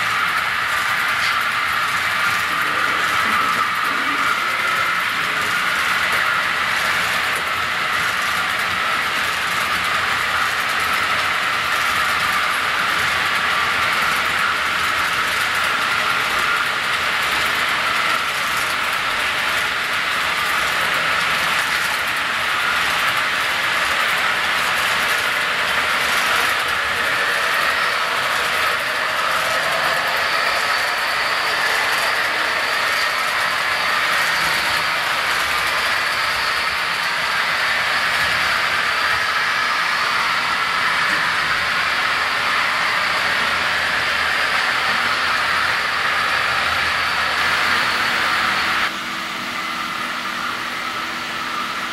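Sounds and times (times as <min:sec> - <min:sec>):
model train wheels on track: 0:00.0 - 0:51.9
thin high whine: 0:20.6 - 0:51.9.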